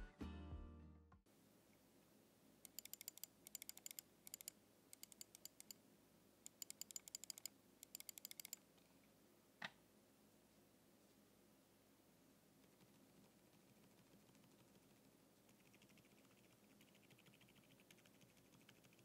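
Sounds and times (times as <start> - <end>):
mouse scroll wheel ticking: 2.6 - 5.8, 6.5 - 8.6, 12.6 - 19.0.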